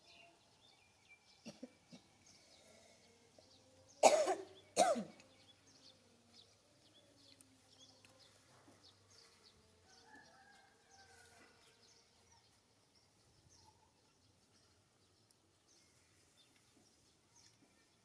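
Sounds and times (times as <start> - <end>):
person coughing: 4.0 - 5.2
faint bird chirps: 13.2 - 14.8.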